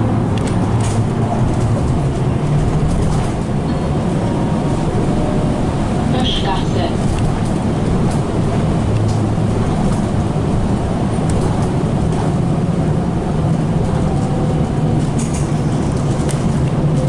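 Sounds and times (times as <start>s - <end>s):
trolleybus rumble and hum: 0.0s - 17.0s
body knocks and rattles: 0.4s - 3.7s.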